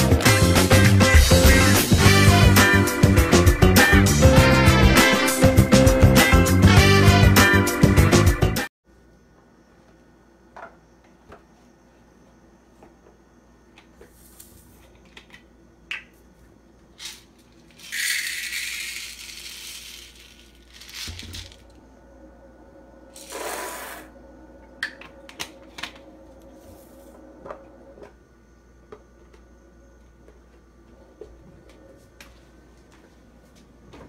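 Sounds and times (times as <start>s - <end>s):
popcorn kernels pouring into bowl: 17.0s - 21.6s.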